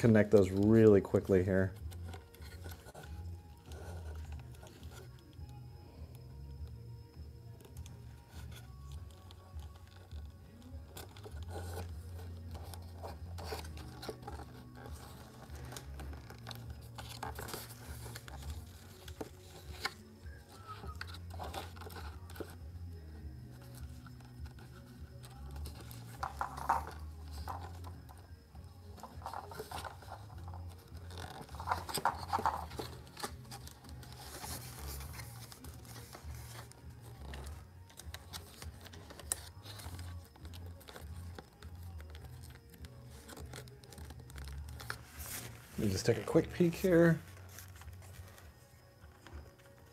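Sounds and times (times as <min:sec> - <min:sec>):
faint background music: 0:00.0 - 0:49.9
hands handling plastic parts: 0:23.5 - 0:28.2, 0:29.0 - 0:49.9.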